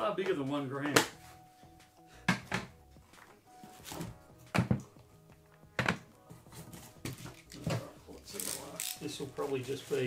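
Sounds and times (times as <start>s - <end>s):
boxes thunking on a table: 4.0s - 4.9s.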